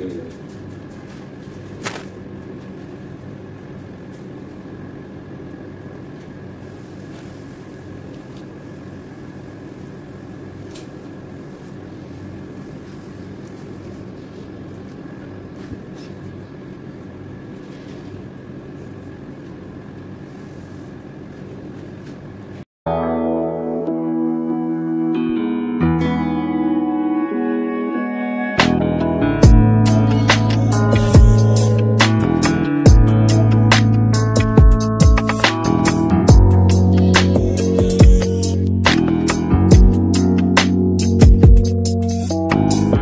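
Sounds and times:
low mechanical hum: 0:00.0 - 0:22.7.

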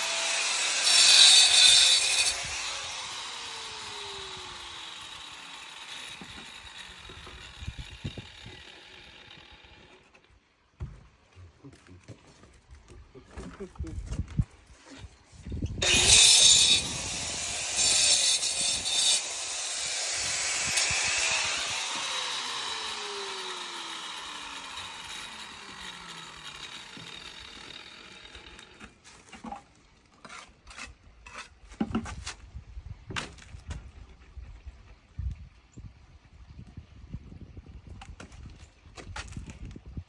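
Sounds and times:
saw blade winding down: 0:00.0 - 0:10.1, 0:15.8 - 0:28.8
power saw cutting stone: 0:00.0 - 0:10.2, 0:15.8 - 0:29.0.

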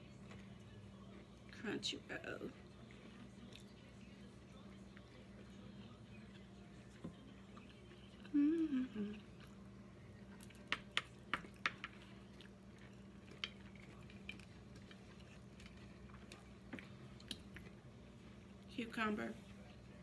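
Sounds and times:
steady low hum: 0:00.0 - 0:20.0
faint chewing: 0:02.5 - 0:18.7
person humming: 0:08.2 - 0:09.4
chopsticks clicking and crunching: 0:10.3 - 0:17.8.

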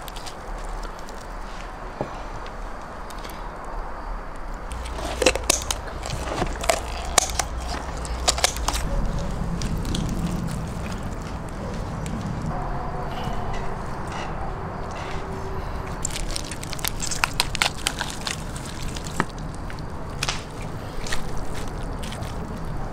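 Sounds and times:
metal skewers clicking: 0:04.7 - 0:09.0
roasted chicken skin crackling: 0:04.7 - 0:12.2, 0:15.9 - 0:22.8.

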